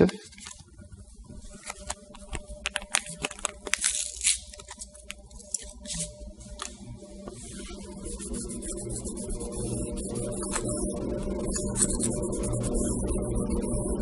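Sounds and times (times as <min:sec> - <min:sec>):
sachet tearing and crinkling: 0:01.5 - 0:06.7.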